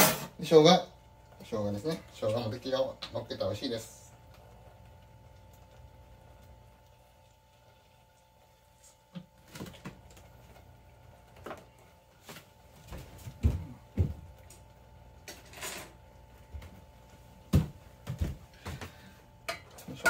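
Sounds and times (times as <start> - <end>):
faint steady hum: 0.0 - 20.0
knocks and bumps in kitchen: 12.8 - 14.3, 17.4 - 19.0.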